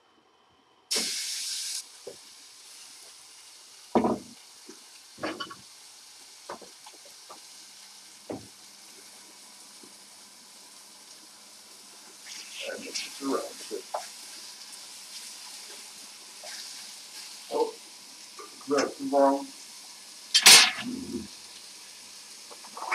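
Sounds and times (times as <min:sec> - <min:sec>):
chicken sizzling in a frying pan: 0:00.9 - 0:22.9
sharp knocks in a pan: 0:04.0 - 0:04.4, 0:05.2 - 0:05.6, 0:20.3 - 0:20.8.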